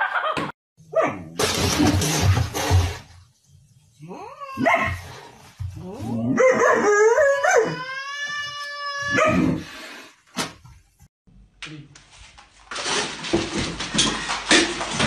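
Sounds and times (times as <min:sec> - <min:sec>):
dog howling: 0:06.4 - 0:09.4.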